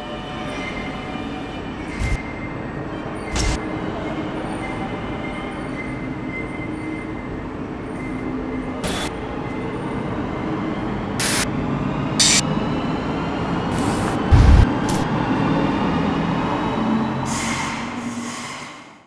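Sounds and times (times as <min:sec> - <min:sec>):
passenger train rumbling: 0:00.0 - 0:19.0
sharp running gear sounds: 0:03.3 - 0:03.6, 0:12.2 - 0:12.4.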